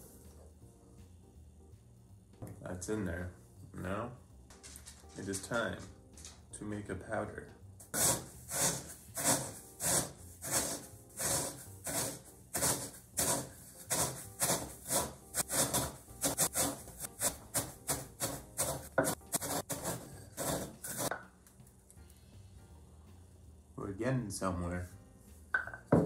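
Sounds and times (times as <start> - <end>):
pestle grinding cereal in mortar: 7.9 - 21.2.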